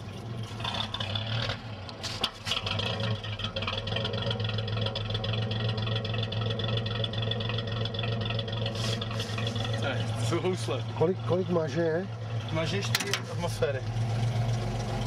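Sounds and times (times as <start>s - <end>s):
exhaust puffing: 0.0s - 15.0s
truck engine idling: 0.0s - 15.0s.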